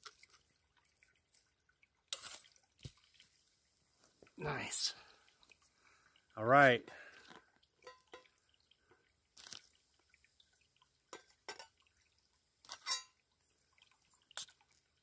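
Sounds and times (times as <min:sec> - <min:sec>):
metal spoon clinking on kettle: 0:07.8 - 0:08.3, 0:12.7 - 0:13.2.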